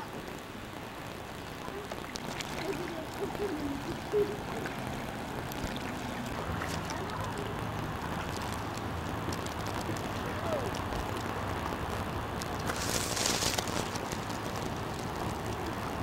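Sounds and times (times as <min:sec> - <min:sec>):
low steady hum: 0:00.0 - 0:16.0
paddle splashes: 0:01.6 - 0:10.9
water sloshing: 0:01.6 - 0:10.9.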